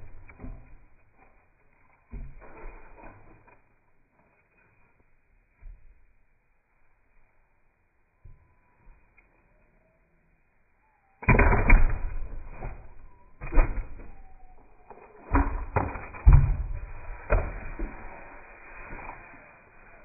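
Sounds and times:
maul splitting log: 0.0 - 3.7, 11.2 - 19.1.

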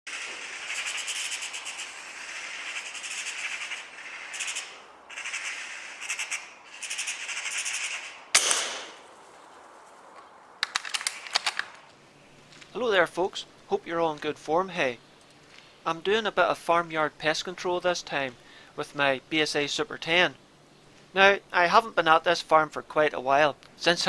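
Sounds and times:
magpie chattering: 0.1 - 8.2
sharp gunshot: 8.3 - 9.0
sharp clicks: 10.6 - 12.0.

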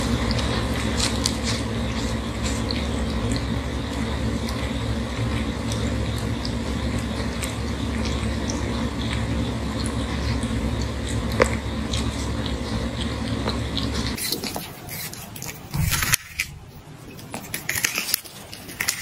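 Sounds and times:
cat licking: 0.0 - 19.0
low rumble: 15.7 - 17.2.

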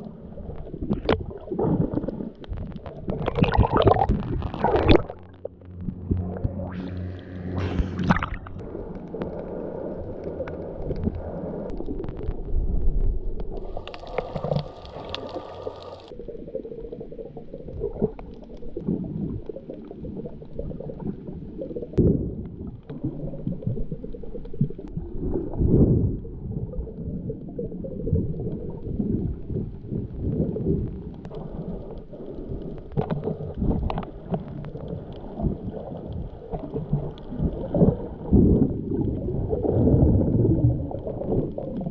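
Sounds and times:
water splashing: 0.0 - 12.5, 13.4 - 26.0
muffled water sloshing underwater: 0.0 - 41.9.

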